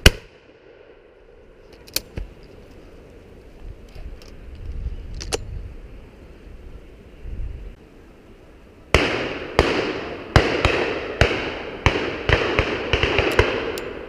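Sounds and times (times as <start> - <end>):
echoing shotgun shots: 0.0 - 0.9, 8.9 - 14.0.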